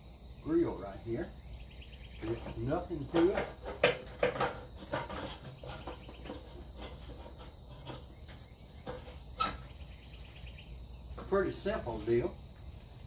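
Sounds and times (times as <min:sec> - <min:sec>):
faint insect chirring: 0:00.0 - 0:13.0
clicks and knocks from grill: 0:03.1 - 0:06.3.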